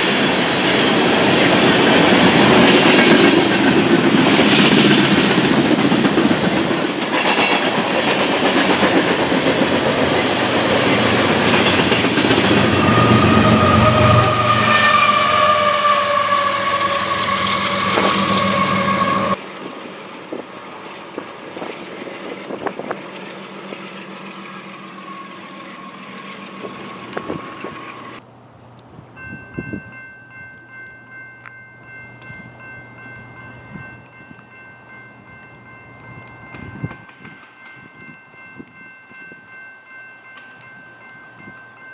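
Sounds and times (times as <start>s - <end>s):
freight train rolling past: 0.0s - 41.9s
high drawn-out squeal: 12.6s - 19.4s, 22.8s - 28.2s.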